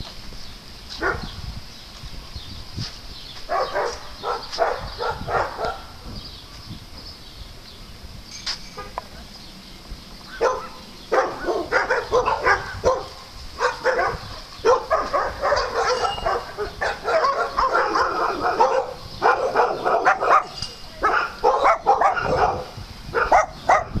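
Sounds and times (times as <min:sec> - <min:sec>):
dogs barking and yapping: 0:00.9 - 0:01.4, 0:03.4 - 0:06.2, 0:10.2 - 0:24.0.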